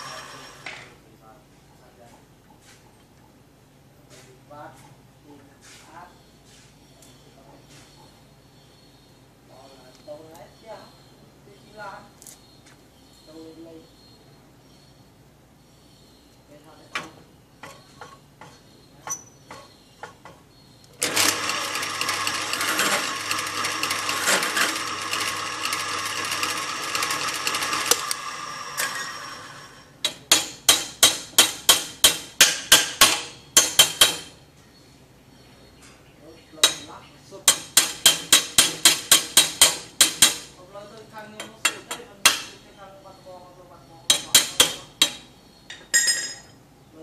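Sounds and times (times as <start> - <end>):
drill press cutting steel: 0.0 - 0.8, 21.0 - 29.9
sharp metallic taps: 30.0 - 34.4, 36.6 - 40.5.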